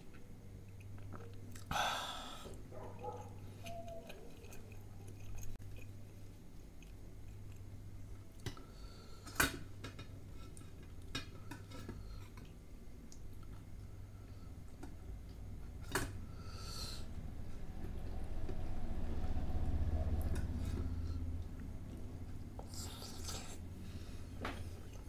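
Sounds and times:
chewing: 0:00.7 - 0:01.7, 0:02.4 - 0:08.6, 0:20.2 - 0:23.6.

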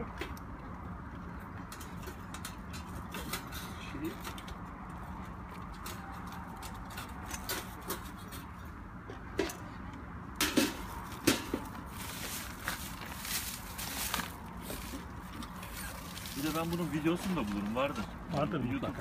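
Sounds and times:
metal clinks and clanks: 0:01.7 - 0:04.7.

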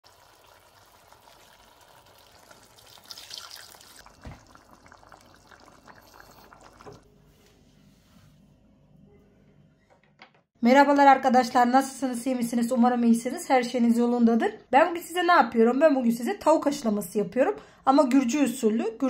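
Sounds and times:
sauce bubbling and popping in pan: 0:00.0 - 0:07.0
thump: 0:04.2 - 0:04.4.

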